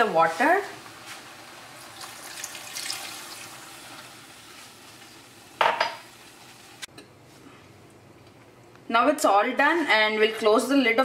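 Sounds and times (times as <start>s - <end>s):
water pouring and splashing: 1.8s - 5.1s.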